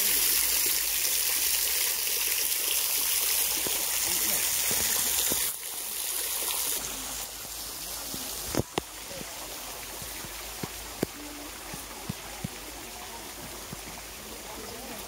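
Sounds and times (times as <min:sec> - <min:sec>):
water splashing and trickling: 0:00.0 - 0:15.0
footsteps on wooden boardwalk: 0:08.0 - 0:14.3.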